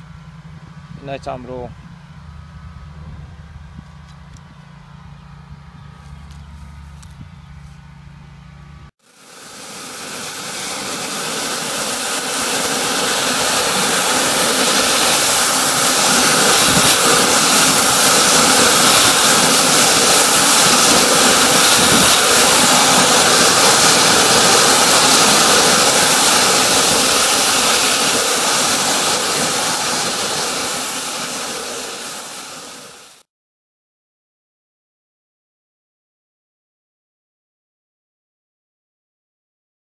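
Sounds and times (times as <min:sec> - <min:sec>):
water jet hissing in pipe: 0:09.1 - 0:33.2.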